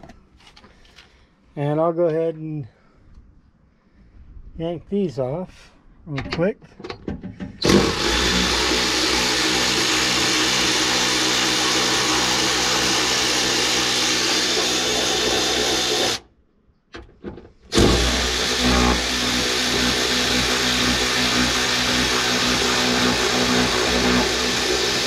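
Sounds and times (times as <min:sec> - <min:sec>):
electric ratchet motor whine: 0:07.6 - 0:16.2, 0:17.7 - 0:25.0.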